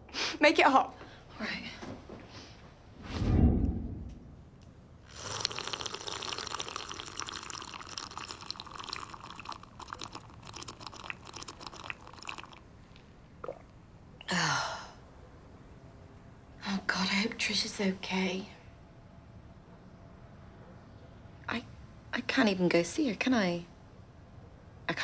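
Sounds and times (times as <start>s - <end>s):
low thump: 3.2s - 4.3s
crackling hissing watery noise: 5.0s - 12.7s.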